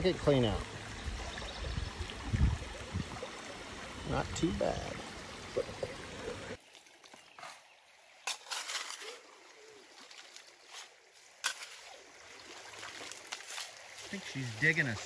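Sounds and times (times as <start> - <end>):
creek trickling: 0.0 - 15.0
shovel scraping wet gravel: 8.3 - 9.2, 10.7 - 11.9.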